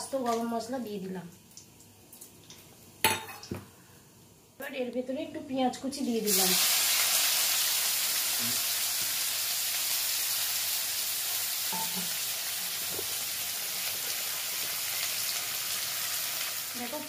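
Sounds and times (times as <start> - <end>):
onion sizzling in oil: 6.1 - 17.0.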